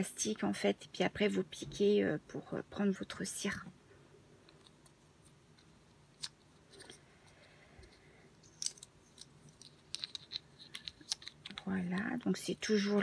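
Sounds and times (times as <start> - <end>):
plastic packaging crinkling: 8.4 - 13.0.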